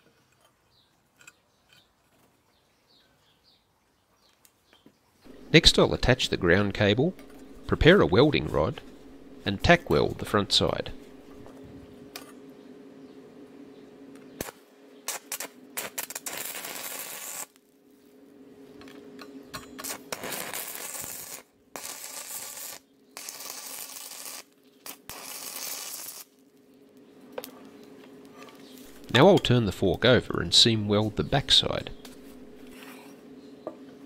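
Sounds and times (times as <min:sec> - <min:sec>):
welding arc crackling: 0:05.3 - 0:12.3, 0:14.1 - 0:17.8, 0:19.6 - 0:32.8
steady low hum: 0:05.3 - 0:21.8, 0:26.3 - 0:34.0.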